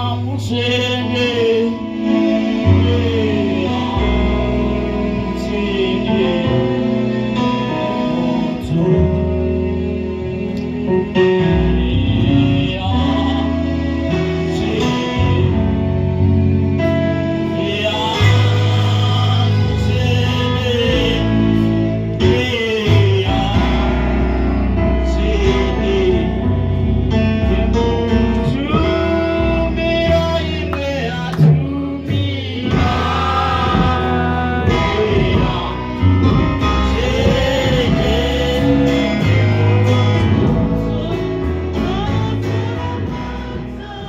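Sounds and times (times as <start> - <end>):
keyboard chords: 0.0 - 44.0
steady bass line: 0.0 - 44.0
voices singing gospel: 0.0 - 44.0.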